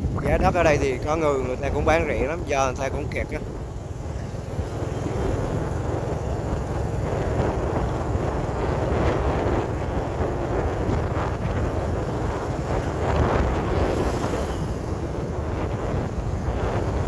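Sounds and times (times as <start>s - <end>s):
traffic and road noise: 0.0s - 17.0s
wind rumbling on microphone: 0.0s - 17.0s.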